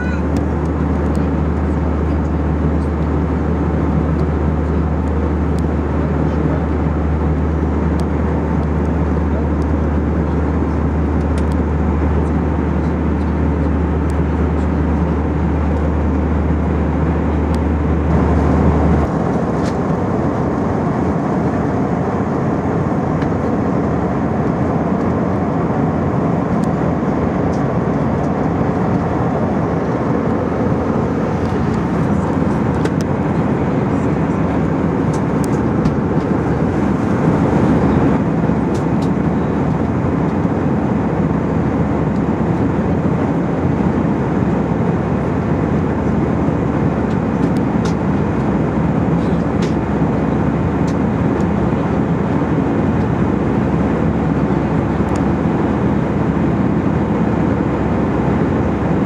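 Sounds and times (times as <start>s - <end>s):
deep hum: 0.0s - 40.0s
jet engine roar in cabin: 0.0s - 59.0s.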